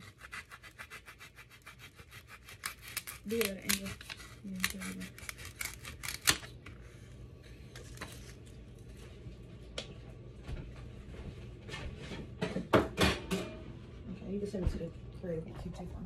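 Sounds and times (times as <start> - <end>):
knife sawing through foam: 0.0 - 5.8
knocks on countertop: 12.4 - 13.5.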